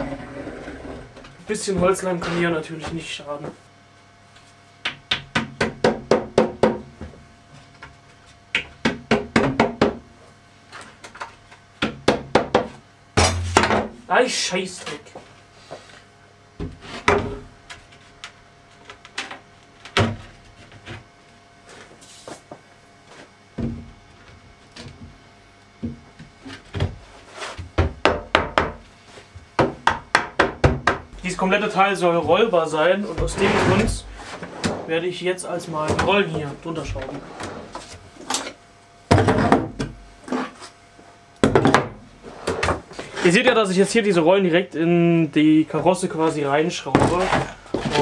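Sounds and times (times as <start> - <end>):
hammer knocking on wood panels: 4.8 - 6.9, 8.6 - 10.0, 11.8 - 13.9, 27.8 - 28.8, 29.6 - 31.1
hammer tapping wooden panel: 29.6 - 31.1.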